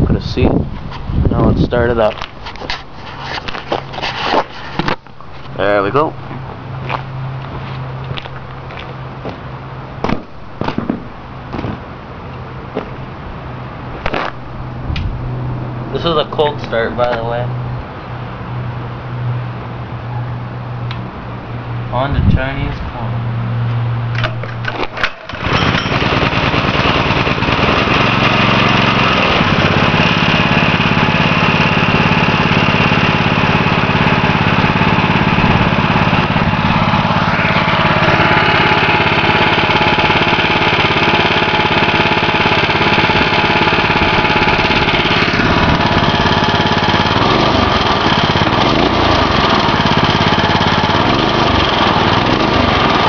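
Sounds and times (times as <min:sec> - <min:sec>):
go-kart engine running: 0:24.2 - 0:53.0.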